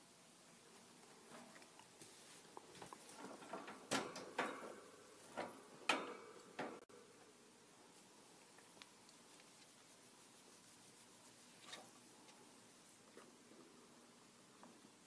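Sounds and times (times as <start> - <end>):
rustling in wood shavings: 0.7 - 3.4
wire cage bars clicking: 3.2 - 6.8.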